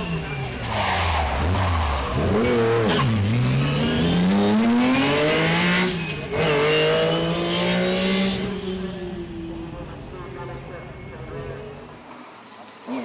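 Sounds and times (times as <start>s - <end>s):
rally car engine revving: 0.0s - 9.2s.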